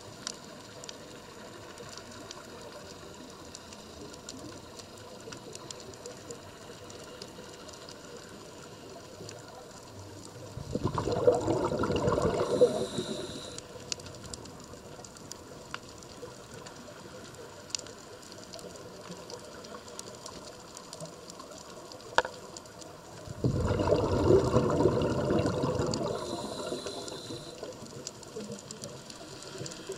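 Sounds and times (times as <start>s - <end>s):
faint underwater clicks: 0.0s - 29.9s
exhaled bubbles from regulator: 10.6s - 13.6s, 23.3s - 27.7s
hiss of diver inhaling: 12.0s - 13.8s, 25.7s - 27.9s.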